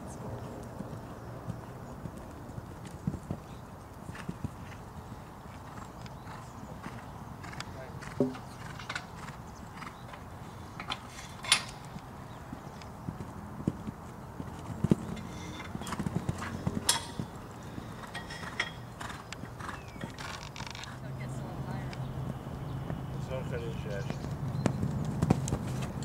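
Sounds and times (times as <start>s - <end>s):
hoofbeats on sand: 12.3s - 21.1s, 21.7s - 26.0s.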